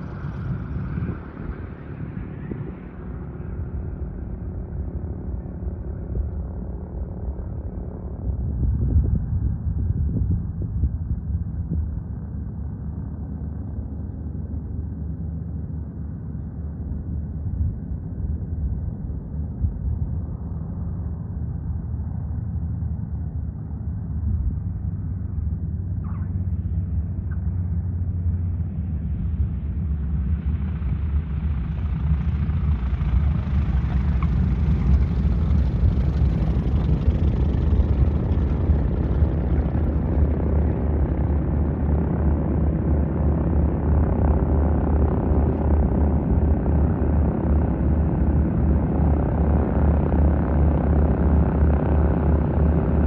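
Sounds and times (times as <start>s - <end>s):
single-engine plane taking off: 0.0s - 53.0s
twin-engine plane taxiing rumble: 0.0s - 53.0s.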